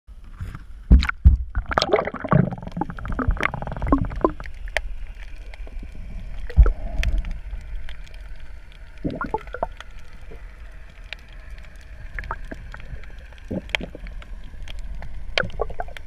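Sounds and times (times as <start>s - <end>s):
muffled underwater ambience: 0.1s - 16.0s
water splashing and gurgling: 0.8s - 16.0s
water bubbling: 0.9s - 16.0s
faint clicks: 4.2s - 16.0s.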